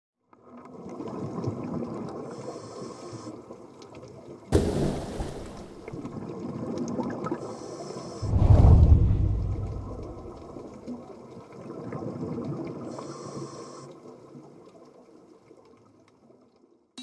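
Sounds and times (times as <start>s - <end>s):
underwater bubbling and gurgling: 0.3s - 16.8s
sudden loud hit: 8.3s - 10.4s.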